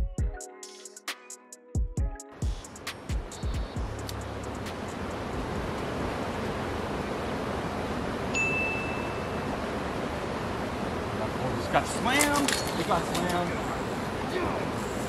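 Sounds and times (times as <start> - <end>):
outdoor background hiss: 2.3 - 15.0
high bell ding: 8.3 - 9.4.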